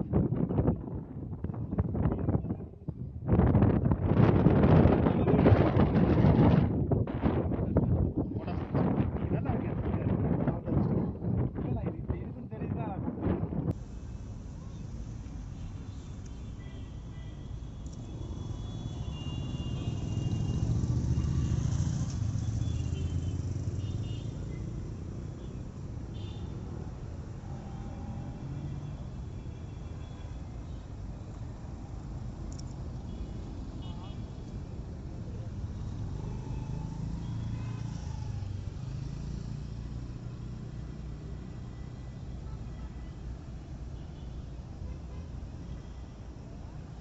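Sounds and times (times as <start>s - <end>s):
vehicle engine rumble passing: 18.0s - 23.8s.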